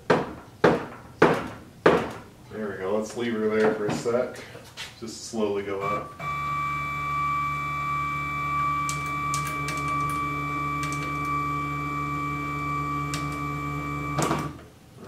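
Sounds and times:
stepper motor whine: 5.9s - 14.5s.

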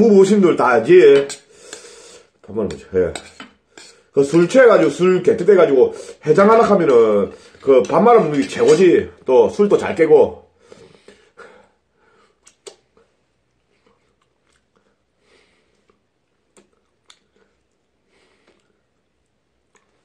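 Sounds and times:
soft lip smacks: 12.4s - 15.0s, 15.7s - 17.8s, 18.4s - 18.8s
man chewing and licking fingers: 12.4s - 15.1s, 15.7s - 20.0s.

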